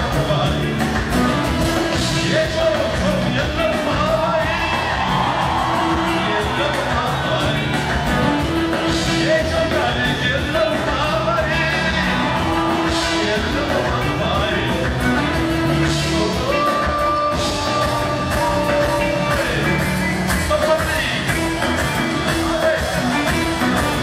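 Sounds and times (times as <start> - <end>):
electric band playing: 0.0 - 24.0
man singing into a microphone: 1.9 - 4.8, 5.9 - 7.8, 8.9 - 14.9, 15.8 - 19.8.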